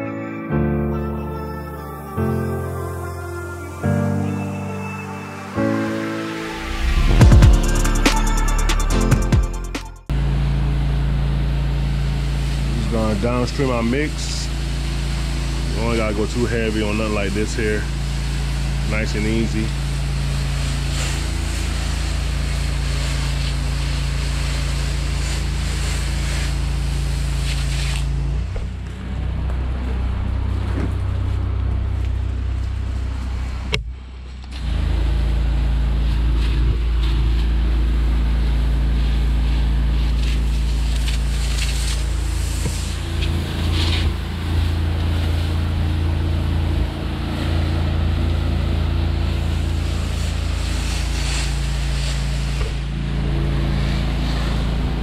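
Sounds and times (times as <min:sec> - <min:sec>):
pressure washer engine running: 0:10.1 - 0:33.6, 0:34.5 - 0:55.0
spray wand hissing: 0:49.5 - 0:52.6.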